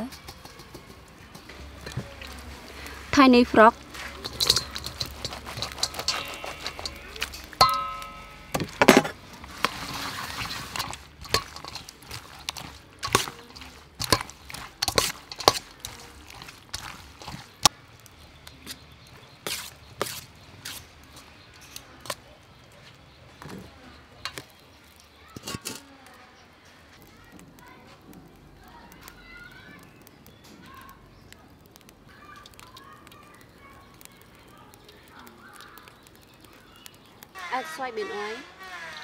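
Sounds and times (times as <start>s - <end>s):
frogs tapping against steel bowl: 0.0s - 19.0s, 24.0s - 25.9s, 28.6s - 37.8s.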